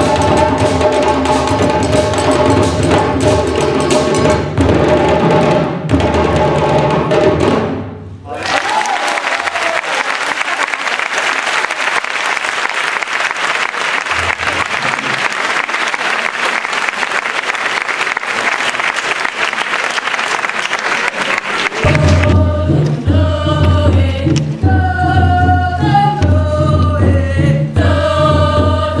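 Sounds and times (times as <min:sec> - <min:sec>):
audience applauding: 0:08.3 - 0:22.3.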